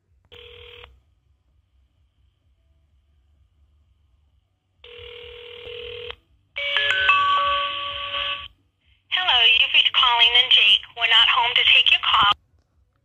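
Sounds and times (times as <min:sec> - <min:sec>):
ringback tone: 0:06.6 - 0:08.5.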